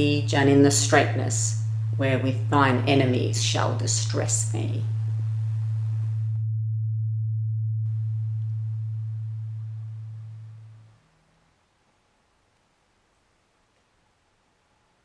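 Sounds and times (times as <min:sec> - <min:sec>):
low electronic drone: 0:00.0 - 0:11.5.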